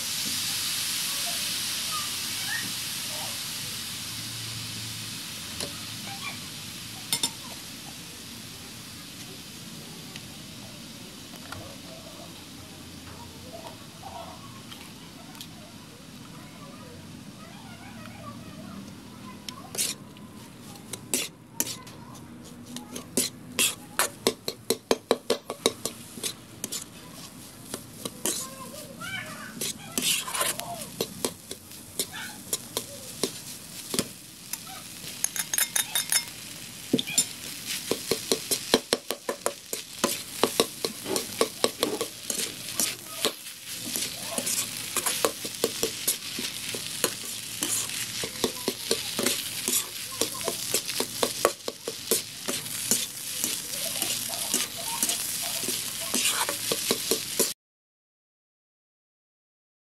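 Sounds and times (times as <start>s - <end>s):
rice sizzling in a wok: 0.0s - 57.6s
metal spatula scraping a pan: 19.7s - 20.0s, 20.7s - 28.9s, 29.5s - 36.4s, 37.0s - 57.5s.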